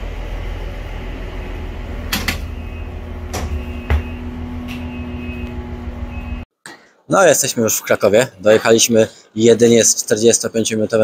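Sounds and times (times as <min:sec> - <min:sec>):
steady hum: 0:00.0 - 0:06.4.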